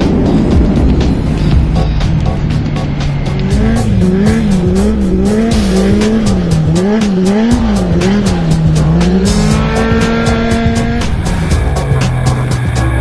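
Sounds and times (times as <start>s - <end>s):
race car engine revving: 0.0s - 13.0s.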